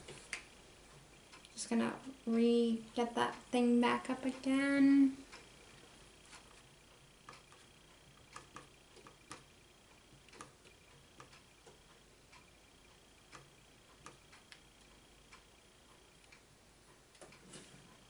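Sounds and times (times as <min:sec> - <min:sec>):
faint high whine: 0:00.0 - 0:18.0
faint small clicks and taps: 0:10.2 - 0:12.5, 0:13.3 - 0:15.5.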